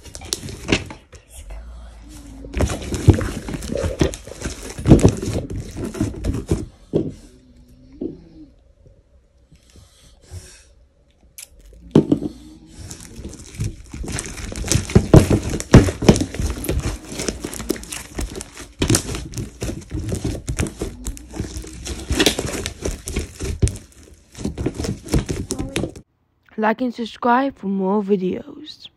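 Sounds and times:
slime squelching and crackling: 0:02.0 - 0:06.6, 0:11.4 - 0:26.0.

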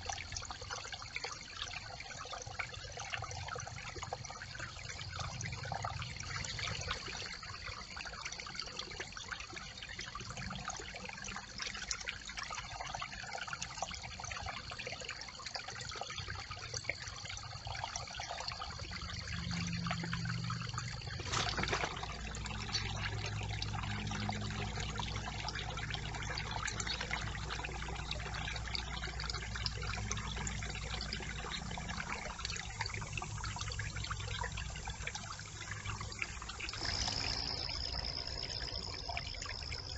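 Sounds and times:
water trickling through sticks: 0:00.0 - 0:39.9
steady high-pitched tone: 0:31.8 - 0:39.9.

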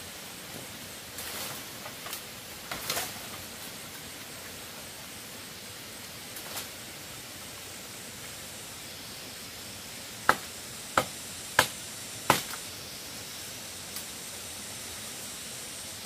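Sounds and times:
steady background hiss: 0:00.0 - 0:16.0
sharp chopping strokes: 0:10.2 - 0:12.6.

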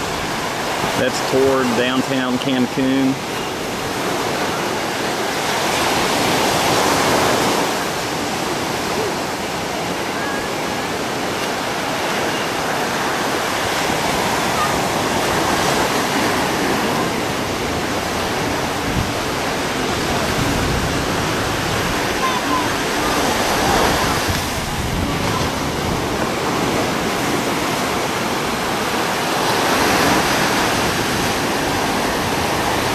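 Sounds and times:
waves breaking on a beach: 0:00.0 - 0:32.9.

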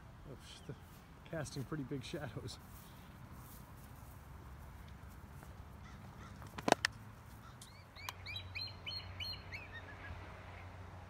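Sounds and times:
high chirping bird calls: 0:07.4 - 0:10.7.

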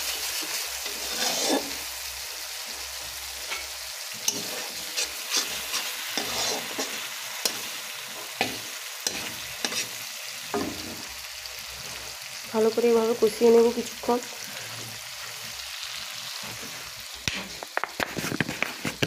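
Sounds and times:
metal spatula scraping pan: 0:00.0 - 0:01.9, 0:03.4 - 0:11.1
paste sizzling in oil: 0:00.0 - 0:19.0.

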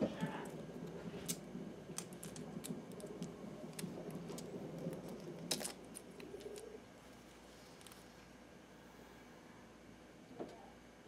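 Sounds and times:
faint low hum: 0:00.0 - 0:11.0
stones clicking and clacking: 0:00.2 - 0:06.7.

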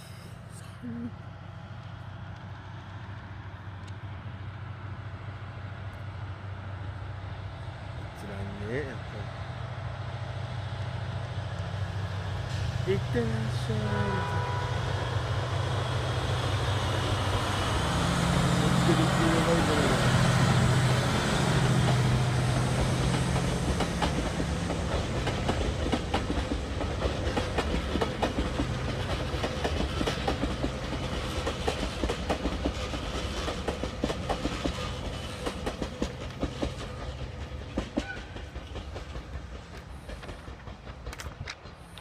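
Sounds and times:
train wheels clicking over rail joints: 0:15.6 - 0:42.0.

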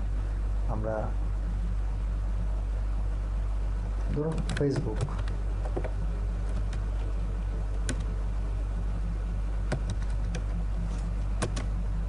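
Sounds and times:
low electrical hum: 0:00.0 - 0:12.0
keyboard keystrokes: 0:04.1 - 0:05.9, 0:07.8 - 0:08.1, 0:09.7 - 0:10.5, 0:11.4 - 0:11.7.

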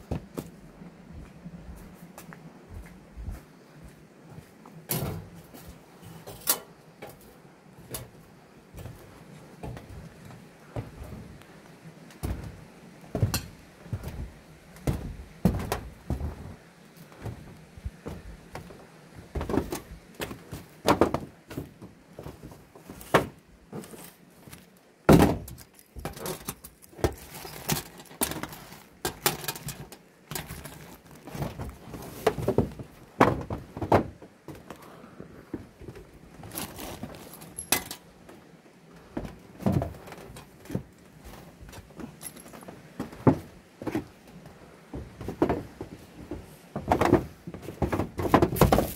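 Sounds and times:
footsteps on metal sheets: 0:12.2 - 0:34.7, 0:44.9 - 0:48.9
small metallic rattles: 0:25.4 - 0:31.7, 0:36.4 - 0:38.1
tools set down on metal: 0:37.4 - 0:38.0.

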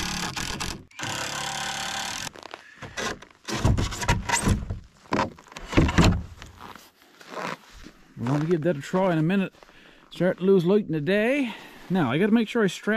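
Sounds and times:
cordless drill driving a screw: 0:00.0 - 0:02.4
knocks and clunks of plywood: 0:02.8 - 0:06.4.

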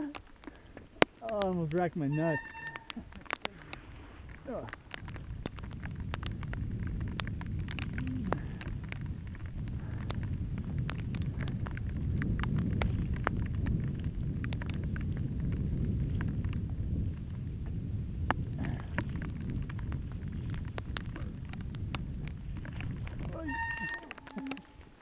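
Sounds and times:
bike clicks and rattles: 0:00.0 - 0:25.0
bike rumbling on rough trail: 0:00.0 - 0:25.0.

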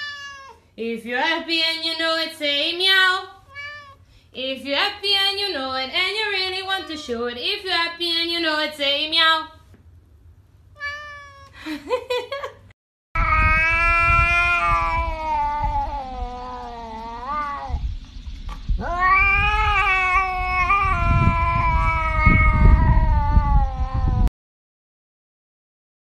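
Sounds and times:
cat yowling: 0:00.0 - 0:00.6, 0:03.4 - 0:04.0, 0:10.8 - 0:11.6, 0:13.2 - 0:17.8, 0:18.8 - 0:24.3.

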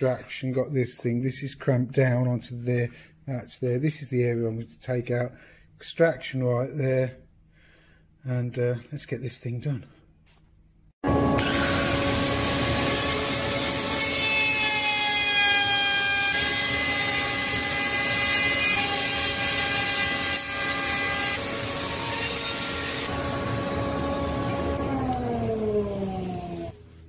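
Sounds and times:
dust extractor running: 0:11.0 - 0:14.1, 0:21.4 - 0:26.8
electric router whining: 0:11.0 - 0:26.8.

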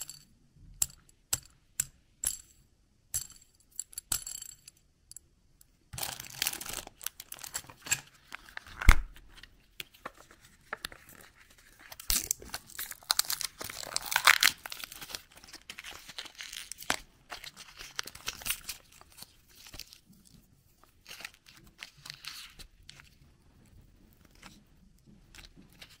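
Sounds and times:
plastic wrapping tearing and crinkling: 0:06.0 - 0:09.2, 0:11.9 - 0:20.0.

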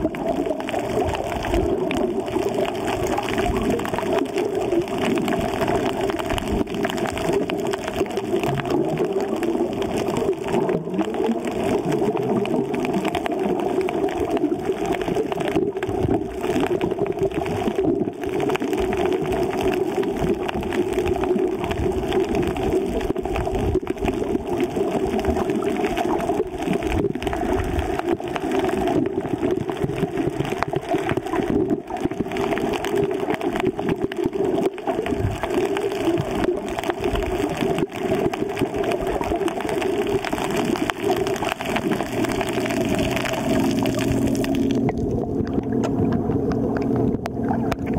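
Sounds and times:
faint underwater crackling: 0:00.0 - 0:47.9
muffled underwater rush: 0:00.0 - 0:47.9.

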